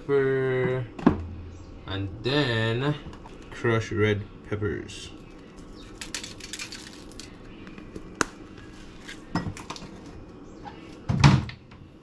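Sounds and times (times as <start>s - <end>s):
pepper flakes rattling on foil: 5.4s - 7.5s.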